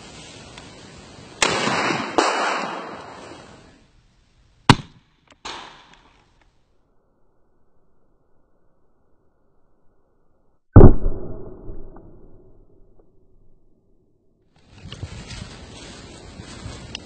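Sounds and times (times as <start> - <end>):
shotgun blasts with echo: 1.4 - 3.2, 4.7 - 6.0.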